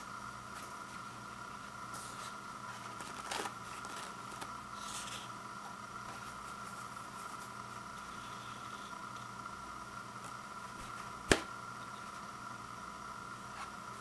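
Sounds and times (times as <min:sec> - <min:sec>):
steady background hum: 0:00.0 - 0:14.0
toilet paper rustling: 0:01.9 - 0:05.2.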